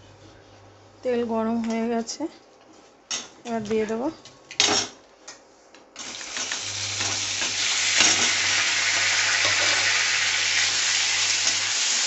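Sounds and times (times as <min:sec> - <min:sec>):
chicken frying in oil: 0:06.0 - 0:12.0.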